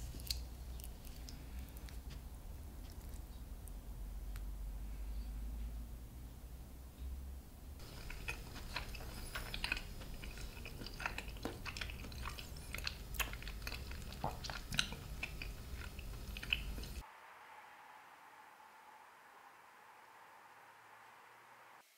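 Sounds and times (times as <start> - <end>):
wet chewing: 0.0 - 3.8, 7.8 - 17.0.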